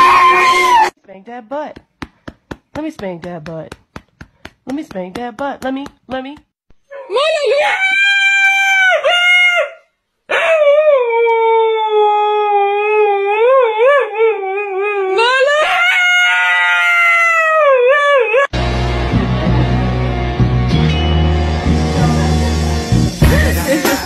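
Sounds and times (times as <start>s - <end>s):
dog howling: 0.0s - 1.0s, 6.9s - 18.5s.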